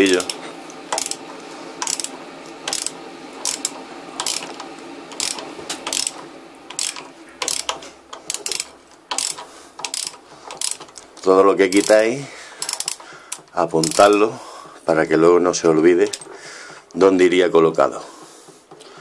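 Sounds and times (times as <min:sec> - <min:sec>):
ratchet wrench clicking: 0:00.1 - 0:01.2, 0:01.8 - 0:14.2.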